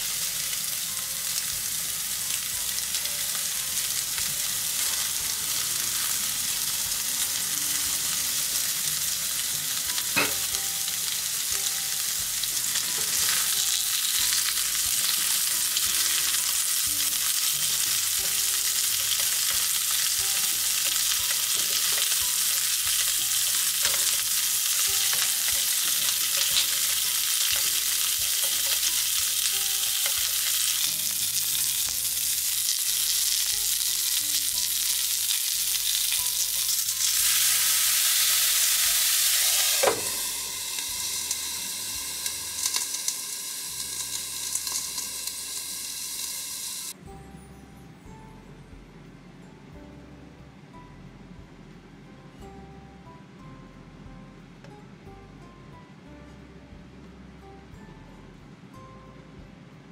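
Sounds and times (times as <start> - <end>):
food sizzling in frying pan: 0.0 - 47.0
liquid steaming in hot pan: 12.2 - 47.0
utensil clicking in pan: 42.2 - 43.2, 43.9 - 46.4.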